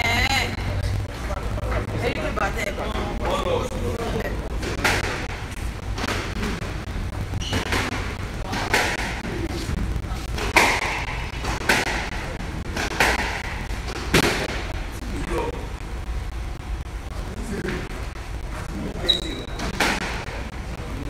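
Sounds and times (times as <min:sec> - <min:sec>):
squash ball knocking: 0:04.0 - 0:16.1.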